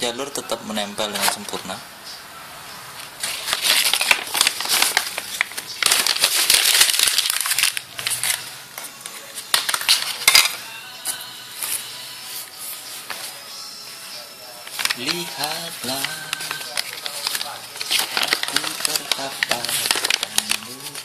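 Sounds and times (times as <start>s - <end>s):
paper crumpling: 3.2s - 13.4s, 14.5s - 21.0s.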